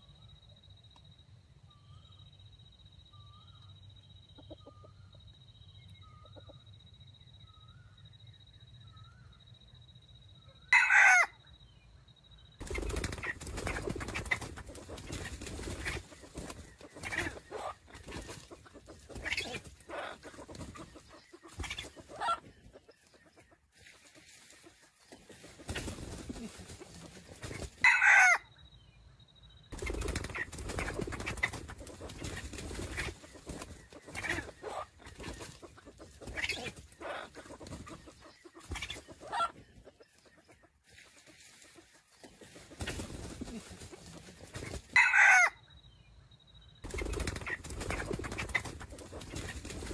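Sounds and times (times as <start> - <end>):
chicken clucking: 4.3 - 5.0, 12.6 - 28.4, 29.8 - 45.5, 46.9 - 49.9
rooster crowing: 10.7 - 11.4, 27.8 - 28.5, 45.0 - 45.6.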